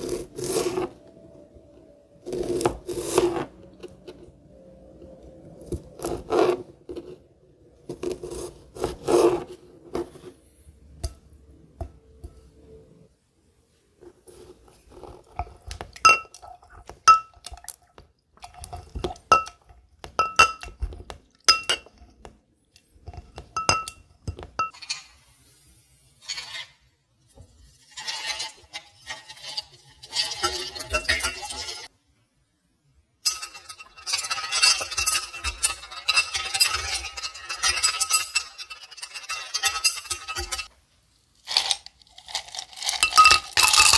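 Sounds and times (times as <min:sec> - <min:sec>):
spoon stirring ice in glass: 0:28.0 - 0:31.9, 0:33.2 - 0:40.7, 0:41.4 - 0:43.9
ice clattering into glass: 0:41.5 - 0:43.9.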